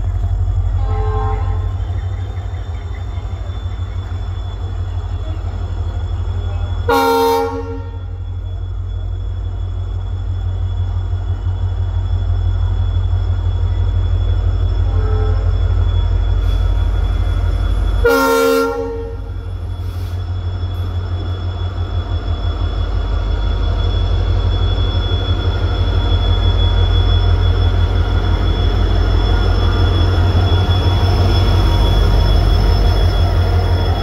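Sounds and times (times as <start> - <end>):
train rumbling: 0.0 - 34.0
train horn: 0.8 - 1.8, 6.6 - 8.2, 14.8 - 15.5, 18.0 - 19.3.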